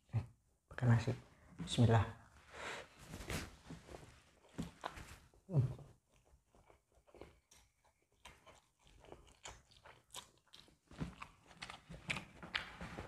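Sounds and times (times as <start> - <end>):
chewing and slurping noodles: 6.1 - 13.0.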